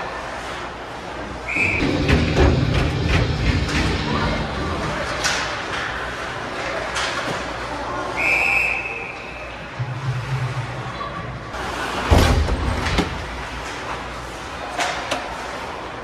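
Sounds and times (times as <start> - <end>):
high whistle: 1.5 - 2.0, 8.2 - 9.6
sticks and puck clacking: 5.0 - 7.6, 12.9 - 15.7
bang against boards and glass: 12.0 - 13.2.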